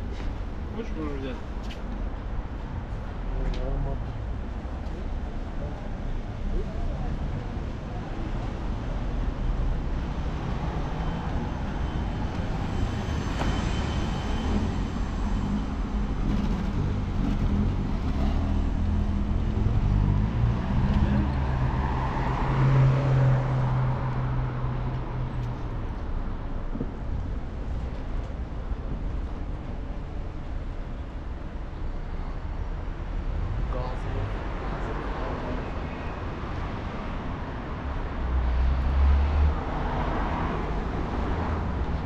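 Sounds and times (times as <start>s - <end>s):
rumble of road traffic: 0.0s - 42.0s.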